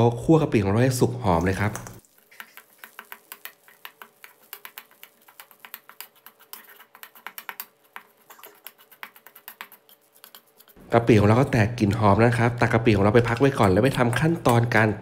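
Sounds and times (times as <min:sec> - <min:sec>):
paste crackling in oil: 0:01.2 - 0:10.8
metal spatula stirring in wok: 0:02.0 - 0:10.8.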